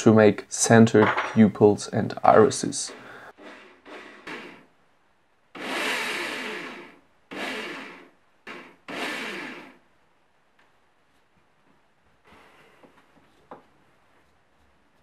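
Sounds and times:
electric drill spinning: 3.4 - 4.7, 5.6 - 9.8.

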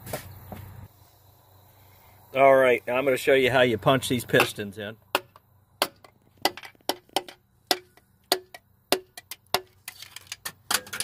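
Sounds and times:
hammer handle tapping metal: 4.4 - 9.8.

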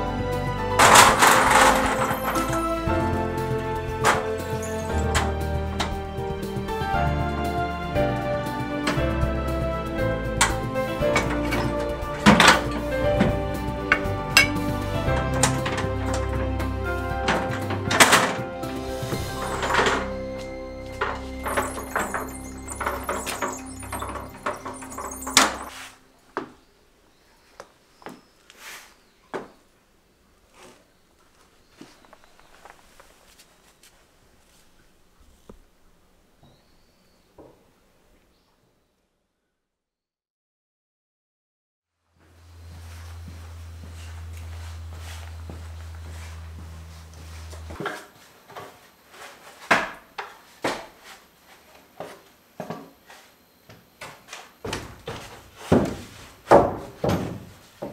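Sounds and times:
background music: 0.0 - 26.3
metal knocks and clunks: 4.0 - 6.0, 10.4 - 18.5, 19.1 - 25.8, 54.7 - 57.9
low steady hum: 42.2 - 48.1
wooden planks knocking: 54.7 - 57.9.

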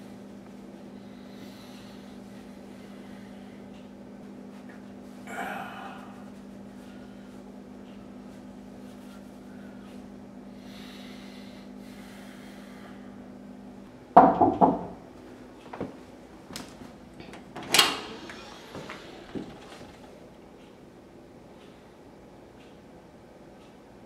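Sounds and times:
knocks on wooden door: 14.2 - 15.0.

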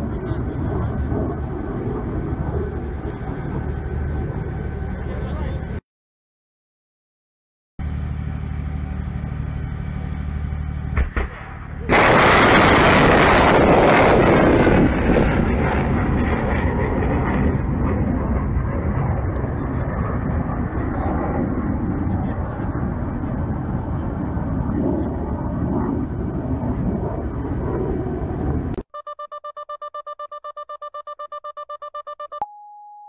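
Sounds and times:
low engine hum: 0.0 - 5.8, 7.8 - 28.8
rocket motor blast: 10.9 - 17.3.

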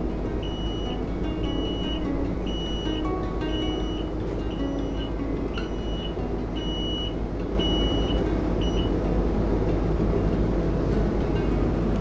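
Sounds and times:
steady low hum: 0.0 - 12.0
high electronic warning beeps: 0.4 - 8.9.

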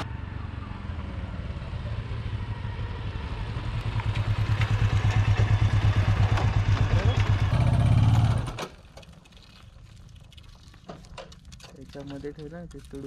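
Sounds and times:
motorcycle engine at low revs: 0.0 - 8.8.

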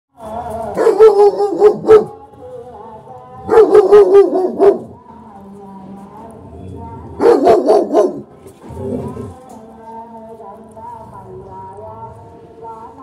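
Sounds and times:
dog barking aggressively: 0.8 - 2.2, 3.4 - 5.0, 7.2 - 8.3.

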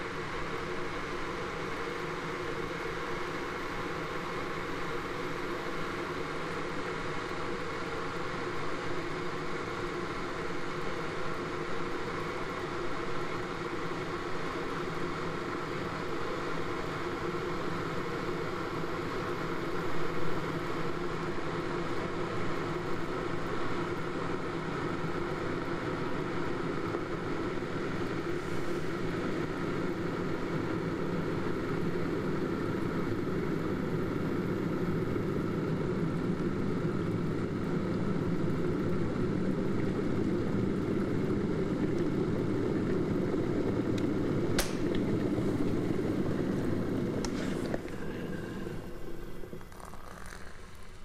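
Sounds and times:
kettle boiling rumble: 0.0 - 51.0
kettle switch click: 44.6 - 45.0.

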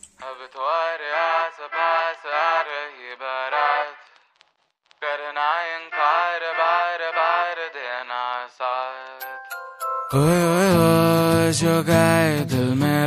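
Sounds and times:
chant-like sung melody: 0.2 - 4.2, 5.0 - 9.3.

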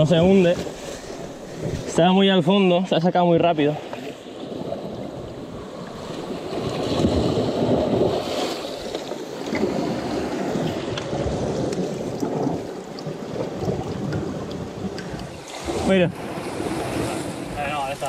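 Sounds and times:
wind buffeting microphone: 0.0 - 18.0
sea water washing against rocks: 3.6 - 18.0.

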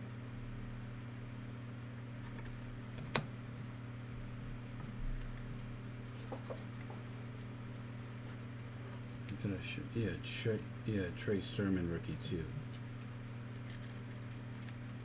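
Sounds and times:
steady low hum: 0.0 - 15.0
clicks and taps at a desk: 6.3 - 7.0.

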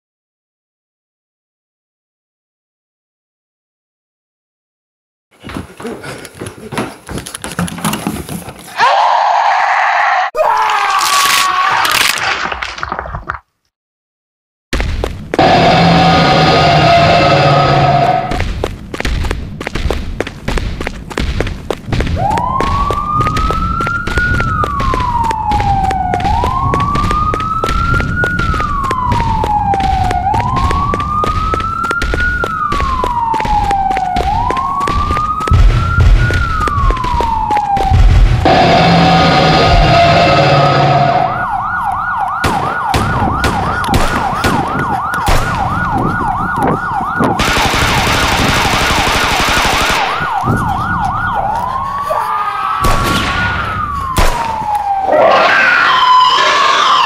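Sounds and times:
emergency siren wailing: 15.4 - 18.4, 22.1 - 57.0
heavy thumps: 18.3 - 38.8
burst of harsh noise: 38.4 - 41.3.

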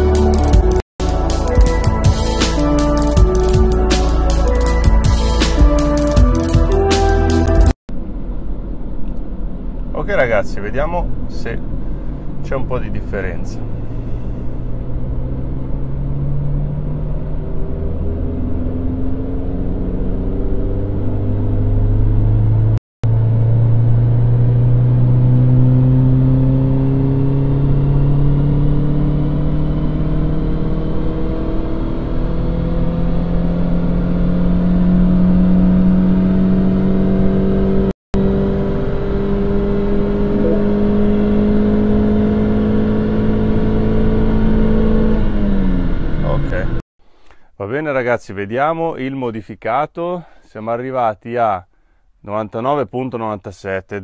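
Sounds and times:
car engine at full throttle: 11.0 - 46.8.

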